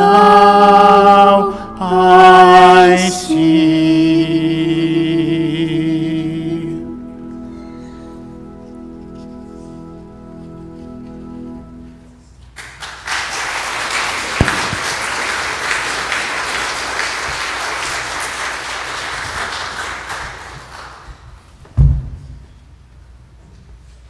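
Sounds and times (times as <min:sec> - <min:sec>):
people singing: 0:00.0 - 0:07.6
bagpipes: 0:06.8 - 0:12.2
congregation applauding: 0:12.6 - 0:21.5
loud dull thump: 0:21.8 - 0:22.4.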